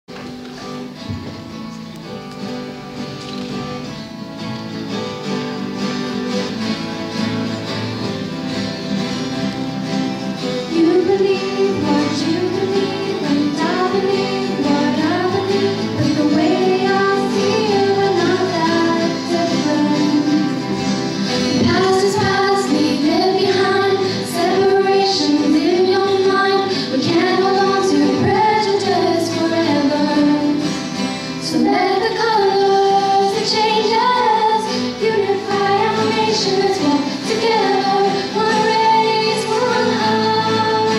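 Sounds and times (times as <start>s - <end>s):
acoustic guitars strumming: 0.1s - 40.9s
girls singing into microphones: 9.4s - 40.9s.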